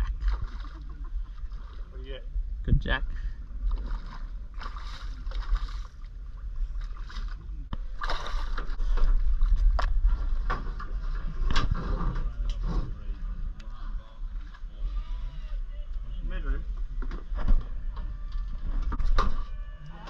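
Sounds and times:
steady low rumble: 0.0s - 19.7s
fish splashing in water: 3.7s - 6.2s.

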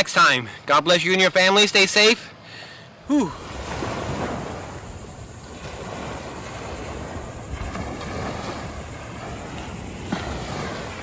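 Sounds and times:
wind buffeting microphone: 3.4s - 11.0s.

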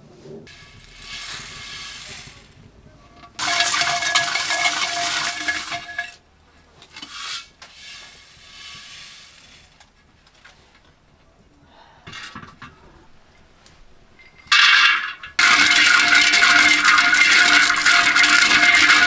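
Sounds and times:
rice grains pouring into bowl: 0.5s - 2.5s, 3.4s - 6.0s, 7.1s - 9.8s, 15.4s - 19.0s.

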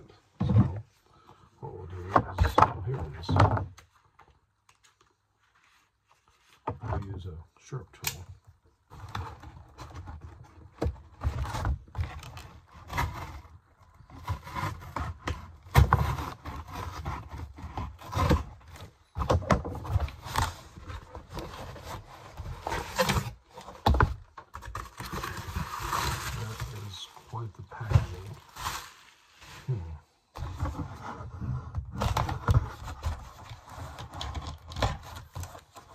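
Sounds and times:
knife cutting cardboard box: 10.8s - 26.9s.

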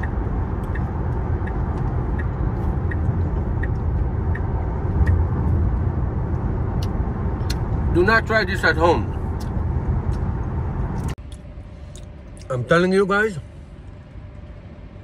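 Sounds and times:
light ticking: 0.0s - 7.7s
road and tyre rumble in car: 0.0s - 15.0s.

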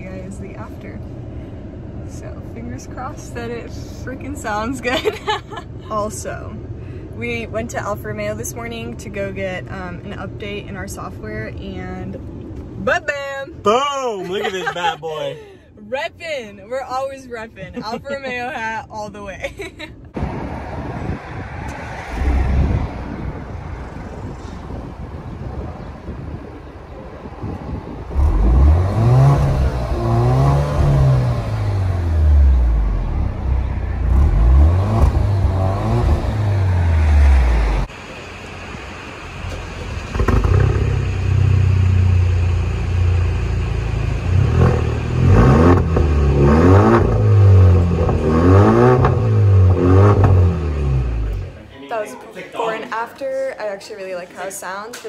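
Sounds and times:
car exhaust revving: 20.2s - 51.6s
loud car exhaust idling: 28.1s - 51.6s.

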